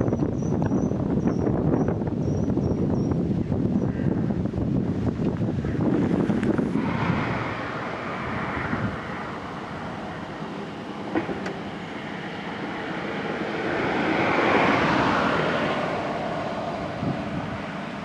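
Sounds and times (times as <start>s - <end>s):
excavator engine and hydraulics: 5.5s - 18.0s
short knock: 11.1s - 11.6s.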